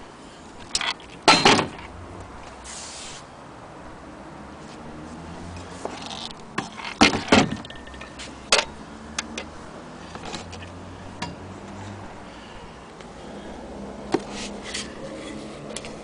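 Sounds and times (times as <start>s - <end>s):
metal parts clicking and knocking: 0.7s - 1.9s.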